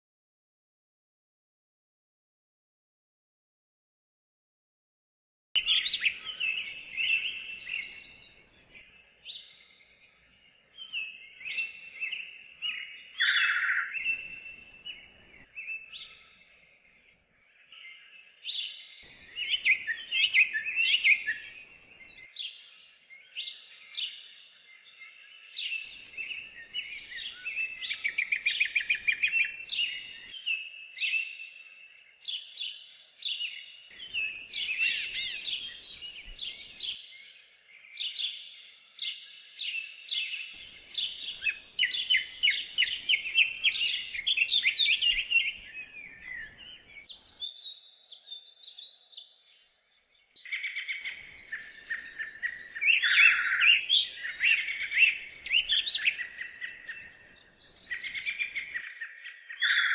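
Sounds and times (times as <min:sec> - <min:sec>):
birds chirping: 0:05.6 - 0:59.9.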